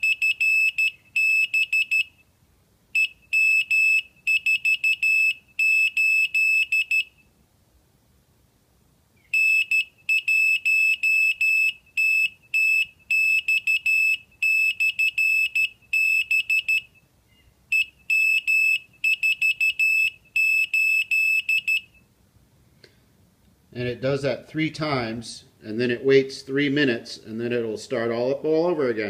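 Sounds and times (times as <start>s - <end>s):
morse code beeping: 0.0s - 2.2s, 3.0s - 7.2s, 9.4s - 16.9s, 17.7s - 22.0s.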